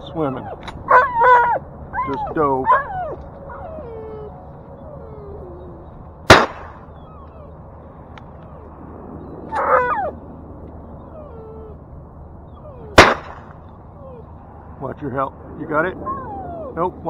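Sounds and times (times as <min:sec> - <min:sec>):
faint dog whimpers: 0:00.0 - 0:06.0, 0:06.9 - 0:07.6, 0:11.0 - 0:11.8, 0:12.4 - 0:13.0, 0:13.9 - 0:14.6, 0:15.8 - 0:17.0
dog whining: 0:00.0 - 0:06.1, 0:06.8 - 0:07.7, 0:09.4 - 0:10.2, 0:10.8 - 0:14.7, 0:16.0 - 0:16.9
shotgun shot: 0:06.3 - 0:06.8, 0:13.0 - 0:13.6.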